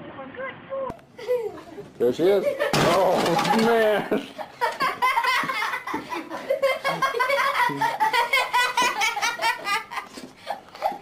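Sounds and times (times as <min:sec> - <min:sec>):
person laughing hard: 0:02.4 - 0:11.0.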